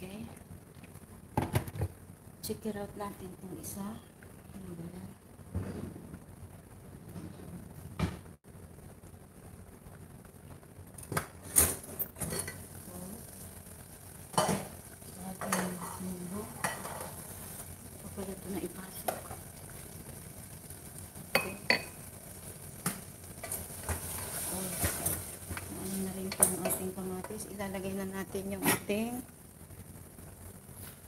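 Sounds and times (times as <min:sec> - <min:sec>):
faint sizzling hiss: 0:00.0 - 0:31.0
metal cookware clinking: 0:12.0 - 0:12.7, 0:15.4 - 0:17.2, 0:21.3 - 0:21.9.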